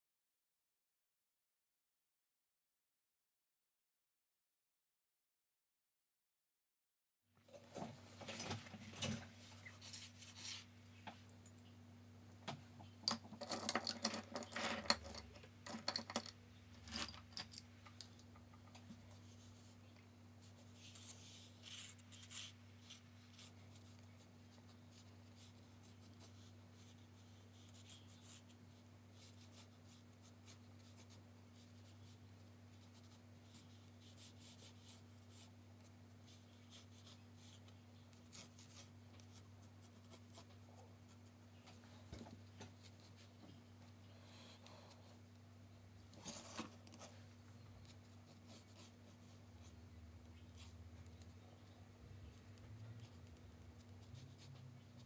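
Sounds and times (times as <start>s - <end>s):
faint low hum: 7.4s - 55.0s
pencil scratching on paper: 20.4s - 35.6s, 36.2s - 41.4s, 47.8s - 49.8s, 52.4s - 54.7s.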